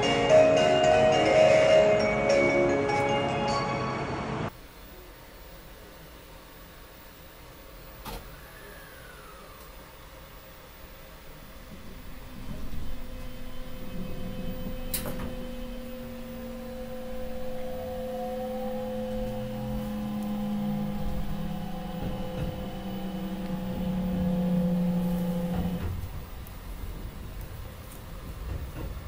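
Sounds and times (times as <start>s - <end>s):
electric train motors whining: 7.4s - 28.6s.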